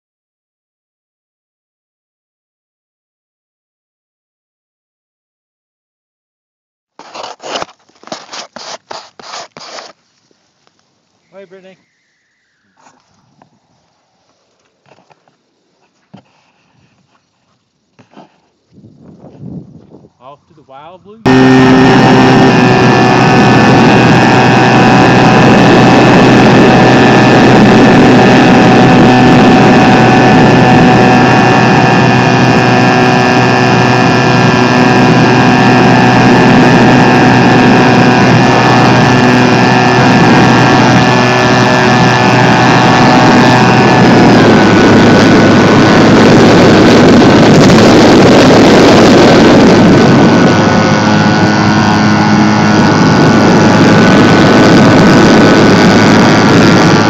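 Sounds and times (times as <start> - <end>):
wind rushing over microphone: 18.7 - 57.0
electric motor whine: 21.3 - 57.0.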